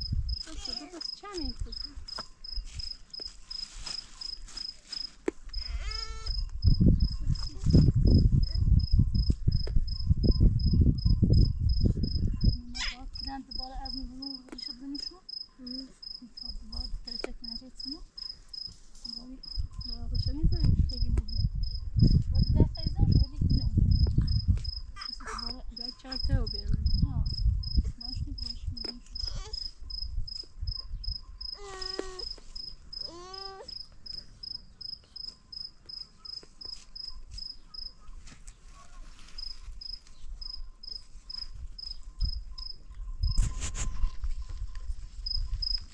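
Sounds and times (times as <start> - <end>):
cricket chirping: 0.0 - 38.1, 38.8 - 45.9
brief pitch-bending calls: 5.6 - 6.5.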